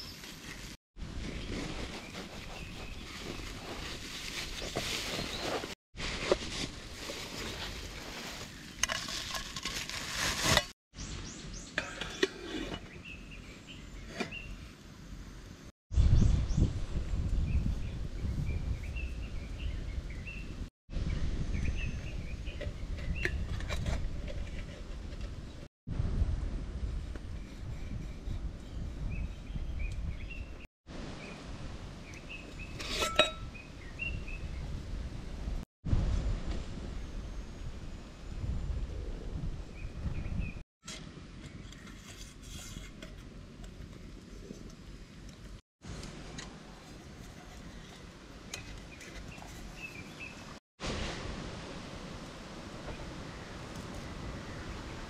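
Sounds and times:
bubble wrap crinkling: 7.0 - 10.7
metal pots clinking: 32.8 - 33.5.

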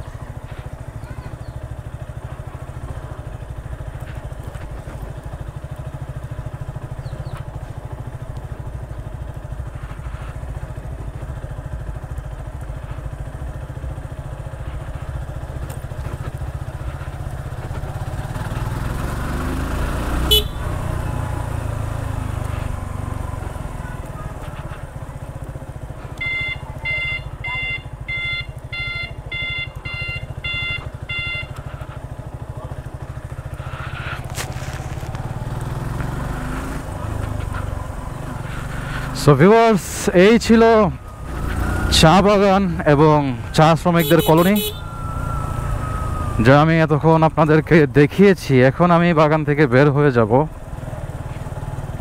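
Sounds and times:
motorcycle engine running: 0.0 - 52.0
short electronic beeps: 26.2 - 31.6.

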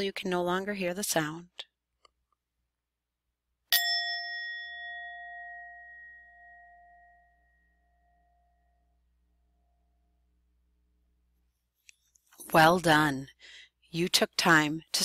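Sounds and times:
singing bell ringing: 3.7 - 9.0.

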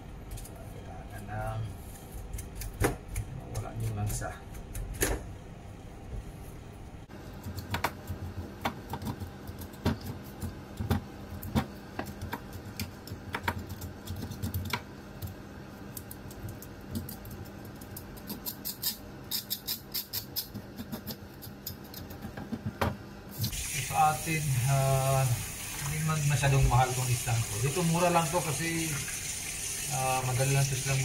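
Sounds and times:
knife scraping fish: 18.1 - 22.1.

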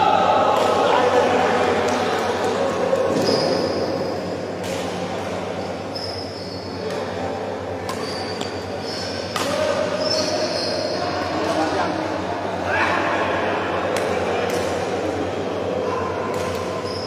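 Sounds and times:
shoes squeaking on court floor: 3.1 - 4.2, 5.9 - 6.8, 7.9 - 9.3, 10.0 - 11.0
racket striking shuttlecock: 9.2 - 9.7.

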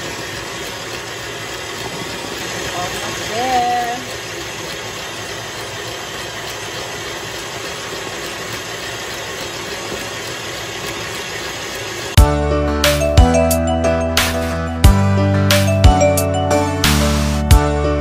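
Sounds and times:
stand mixer motor running: 0.0 - 12.5
music: 12.2 - 18.0.

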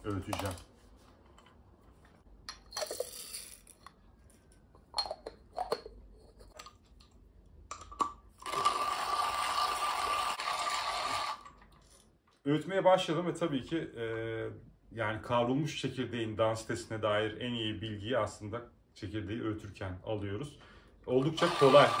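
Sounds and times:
coffee beans clattering: 2.6 - 3.9
hand grinder crunching beans: 8.4 - 12.0, 21.1 - 22.0.

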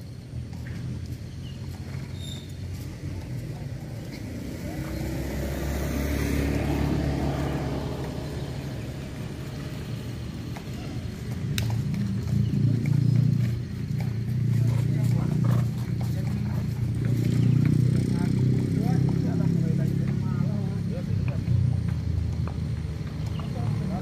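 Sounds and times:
motor vehicle passing by: 0.0 - 24.0.

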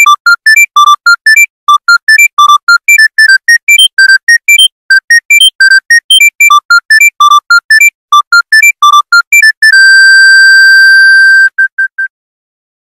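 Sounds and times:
electronic phone ringtone beeps: 0.0 - 10.4.

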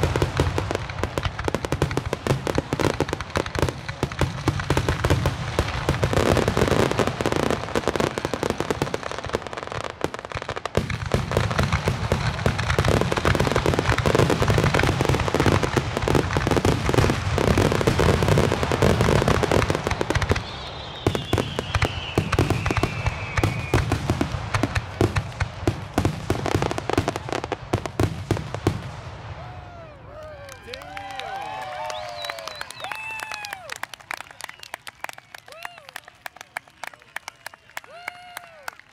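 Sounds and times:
fireworks booming and crackling: 0.0 - 29.9
descending firework whistle: 17.7 - 24.3, 29.2 - 38.8.

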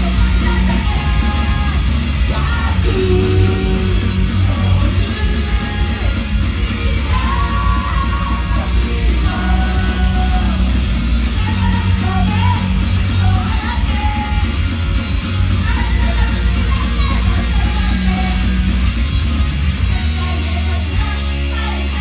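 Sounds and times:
women singing over bass beat: 0.0 - 14.6.

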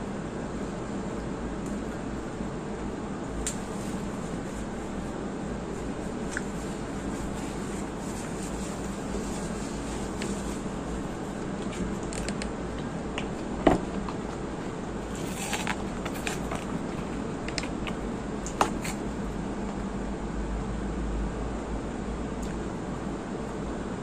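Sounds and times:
steady background hum: 0.0 - 24.0
food crackling and rustling: 3.4 - 19.1.

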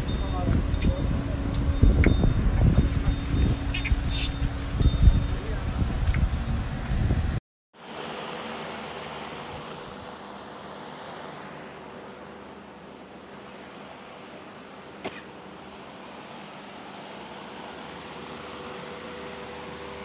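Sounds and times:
insect chirring: 7.8 - 20.0.

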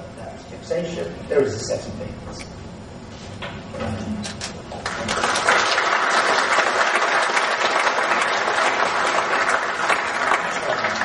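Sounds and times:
audience applauding: 4.8 - 11.0.

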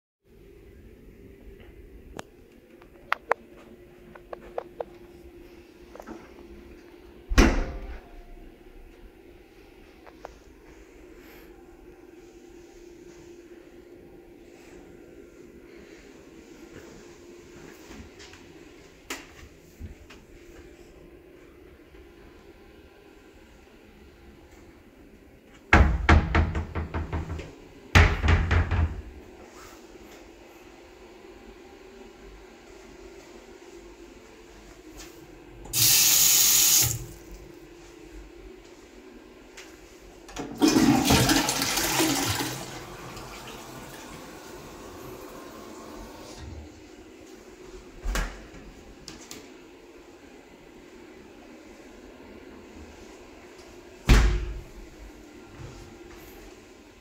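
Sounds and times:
faint steady hum: 0.3 - 57.0
cupboard doors knocking shut: 25.8 - 27.4, 28.0 - 29.0.

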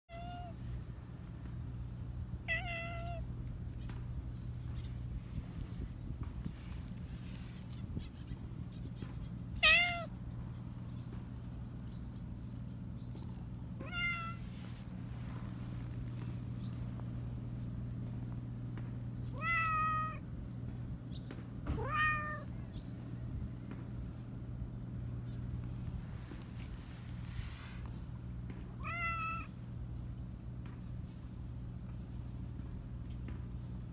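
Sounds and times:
cat meowing in a high voice: 0.1 - 0.6, 2.5 - 3.2, 9.6 - 10.1, 13.8 - 14.4, 19.3 - 20.2, 21.7 - 22.5, 28.8 - 29.5
steady low hum: 0.1 - 33.9.

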